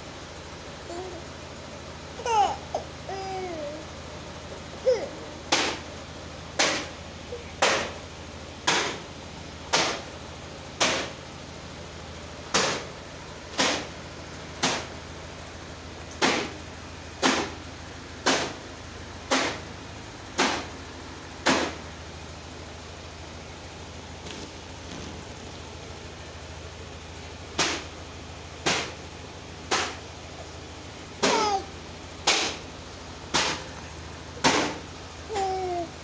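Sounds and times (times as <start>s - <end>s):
rope swing creaking: 24.2s - 25.4s.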